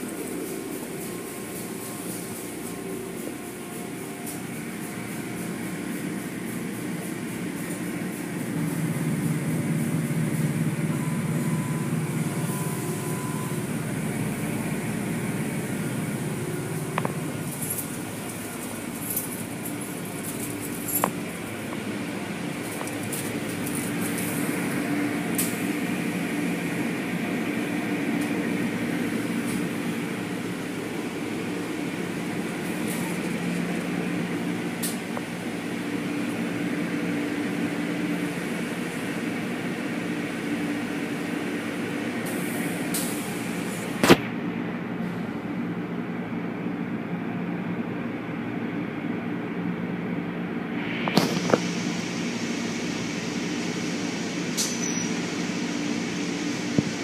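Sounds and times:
motors and spinning brushes humming: 0:00.0 - 0:44.0
hissing water spray: 0:50.8 - 0:57.0.

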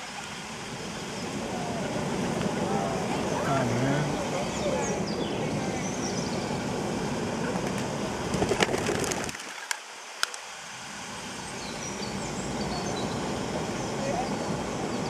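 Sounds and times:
small birds calling: 0:01.1 - 0:06.7
pigeon wingbeats clattering: 0:07.6 - 0:09.8.

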